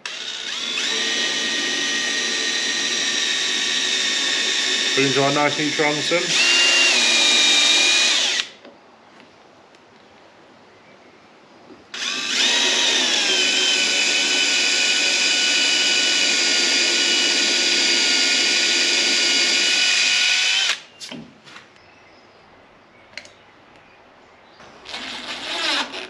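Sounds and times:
cordless drill whining: 0.0 - 8.6, 11.9 - 20.9, 24.8 - 26.0.

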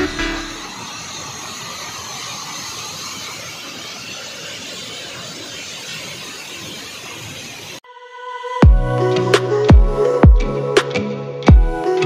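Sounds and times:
waterfall rushing over rocks: 0.0 - 7.8.

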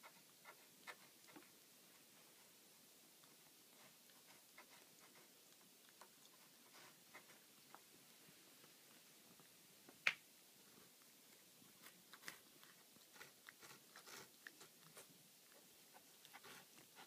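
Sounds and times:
cat licking plastic: 11.7 - 17.0.

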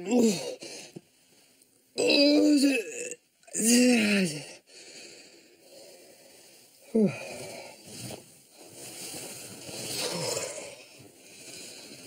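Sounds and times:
man snoring and snorting: 9.9 - 10.9.

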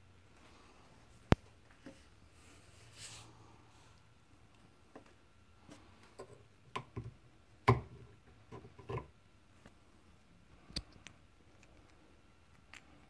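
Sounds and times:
plastic caps clicking and knocking: 6.2 - 9.1.

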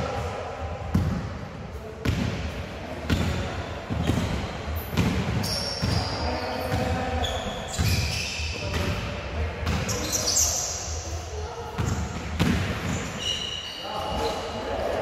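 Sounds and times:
basketball bouncing on court: 0.9 - 1.3, 2.0 - 2.4, 3.1 - 7.1, 11.8 - 13.1
short high squeaks: 9.9 - 10.8, 12.9 - 14.4.

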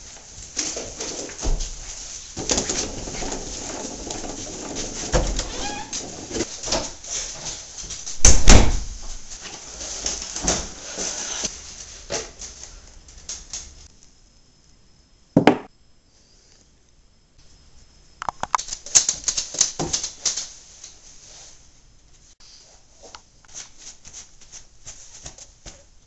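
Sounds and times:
knocks and rustles: 0.0 - 13.9, 18.4 - 21.0
door shutting with thump: 8.2 - 9.1.

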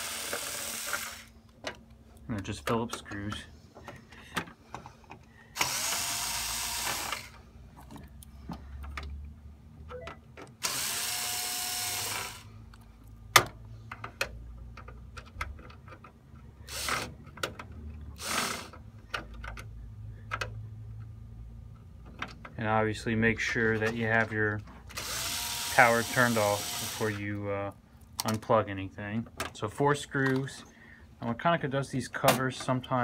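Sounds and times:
cordless drill running: 0.0 - 1.4, 5.6 - 7.4, 10.6 - 12.5, 16.7 - 17.0, 18.2 - 18.7, 25.0 - 27.2
small clicks and handling knocks: 1.5 - 5.3, 7.8 - 9.3, 12.7 - 16.5, 17.2 - 18.1, 18.7 - 21.1, 21.7 - 22.6, 28.0 - 28.5, 30.2 - 30.6.

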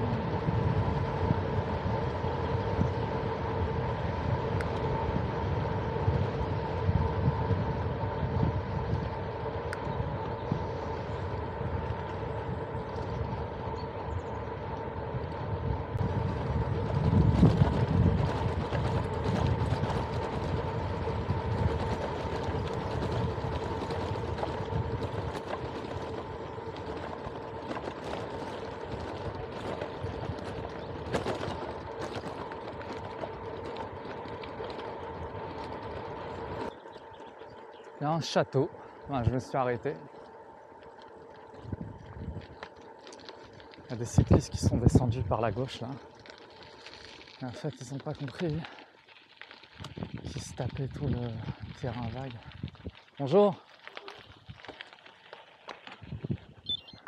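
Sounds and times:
wind on microphone: 0.0 - 33.8, 41.6 - 42.6, 49.8 - 53.0, 56.0 - 57.0
bicycle tyre rumble: 0.0 - 57.0.

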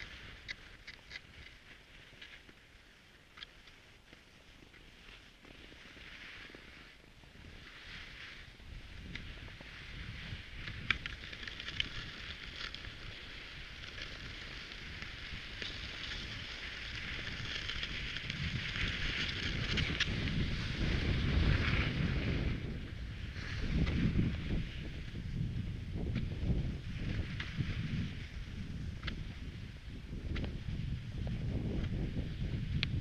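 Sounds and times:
skis hissing over snow: 0.0 - 33.0
wind buffeting microphone: 8.5 - 33.0.

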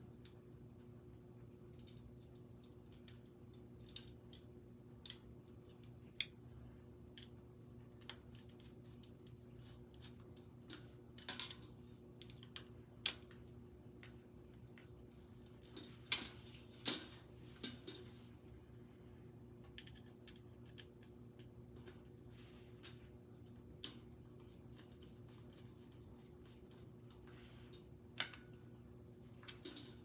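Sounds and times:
faint steady hum: 0.0 - 30.0
screwdriver clicks and scrapes on metal: 7.1 - 14.2, 19.7 - 22.1, 22.8 - 28.5, 29.4 - 30.0.

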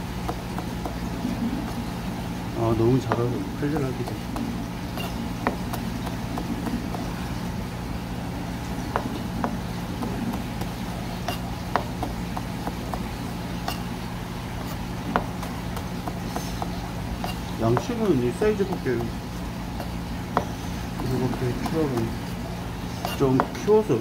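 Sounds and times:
steady low hum: 0.0 - 24.0
knife knocking on cutting board: 3.0 - 7.1, 8.9 - 10.7, 15.1 - 19.1.

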